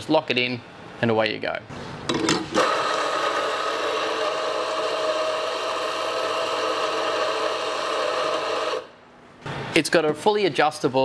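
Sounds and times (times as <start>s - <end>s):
coffee grinder grinding beans: 2.6s - 8.9s.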